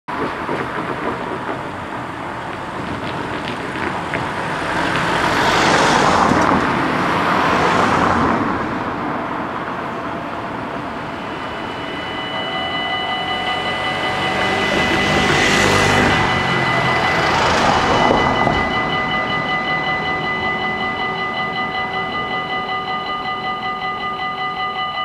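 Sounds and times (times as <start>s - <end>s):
road traffic passing: 0.1s - 25.0s
level crossing warning bells: 9.7s - 25.0s.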